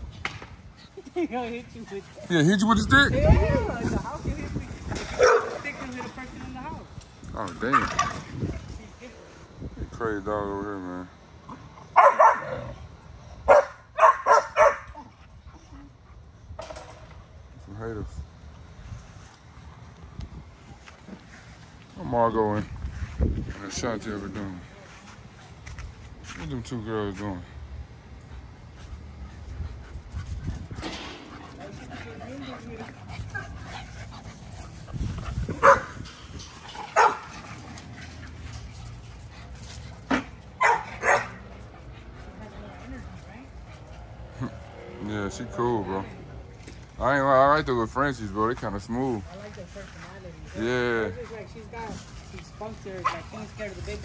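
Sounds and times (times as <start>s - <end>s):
dog barking: 5.2s - 5.6s, 12.0s - 12.5s, 13.5s - 15.0s, 35.6s - 35.9s, 37.0s - 37.3s, 40.6s - 41.4s.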